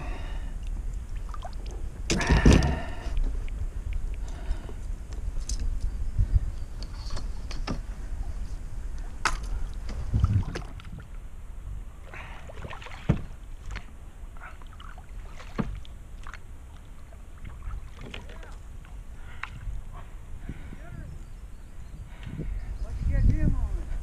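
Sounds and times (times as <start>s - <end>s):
water sloshing and dripping: 0.6s - 5.6s, 9.0s - 11.2s, 12.0s - 20.1s
paddle pulling through water: 6.4s - 20.8s.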